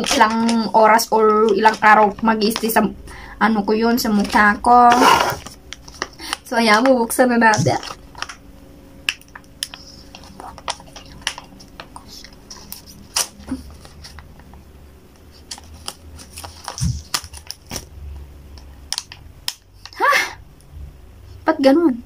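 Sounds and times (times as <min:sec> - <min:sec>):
foil sachet crinkling: 0:05.4 - 0:08.4, 0:09.1 - 0:14.4, 0:15.3 - 0:17.9.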